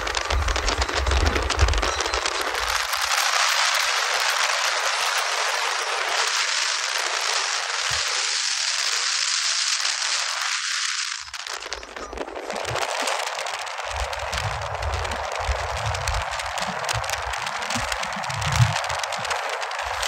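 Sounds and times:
wind and road noise rushing: 13.5 - 20.0
low rumble: 13.9 - 20.0.

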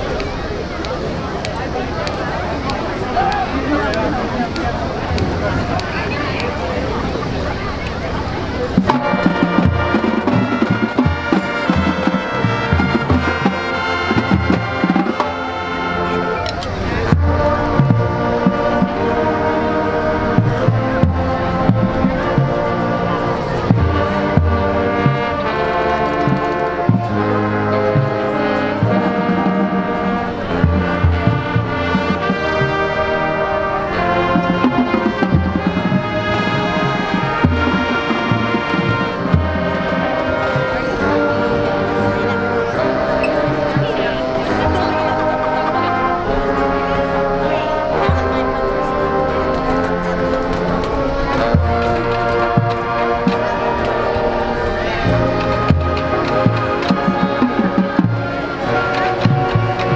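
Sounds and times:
brass chords: 0.0 - 59.9
low bass notes: 0.0 - 59.9
marching band playing: 0.0 - 59.9
drum strikes: 8.8 - 15.4, 34.2 - 40.6, 55.0 - 59.9.

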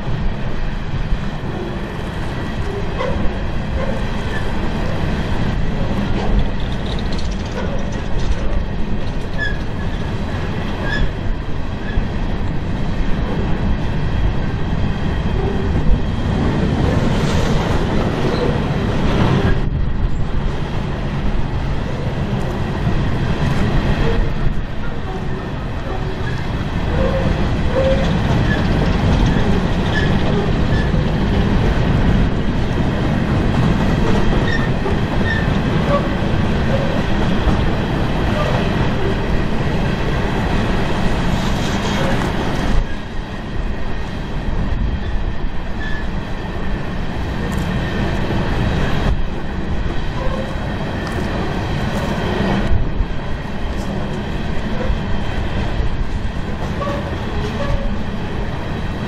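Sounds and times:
train cars rumbling on rails: 0.0 - 59.0
wheel squeals and clinks: 6.6 - 10.2, 10.8 - 11.1, 26.0 - 31.1, 34.1 - 37.0, 45.8 - 46.1.

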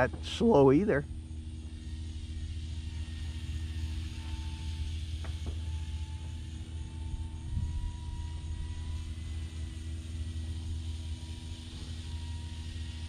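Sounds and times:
faint whine of small electric motor: 0.0 - 13.0
wind rumble on microphone: 7.0 - 9.2.

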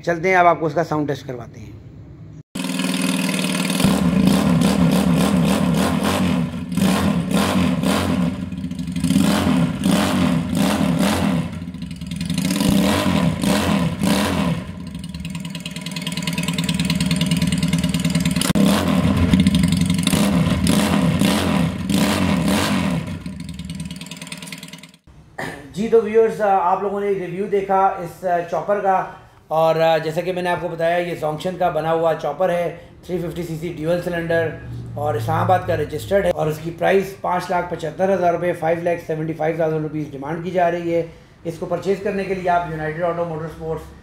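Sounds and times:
motorcycle engine revving: 2.6 - 25.1.

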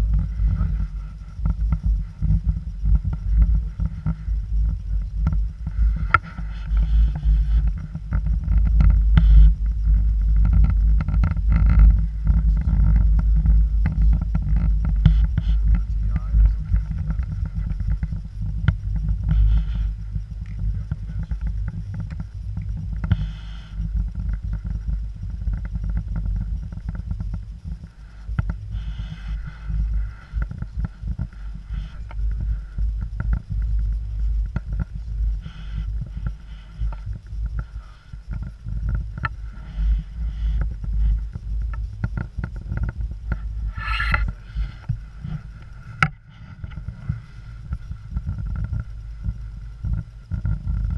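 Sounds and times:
clicks and creaks: 0.0 - 50.9
low rumble: 0.0 - 50.9.

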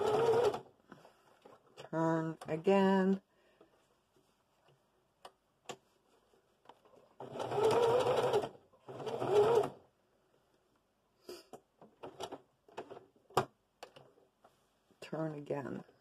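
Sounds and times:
sewing machine stitching: 0.0 - 0.7, 7.2 - 9.8.

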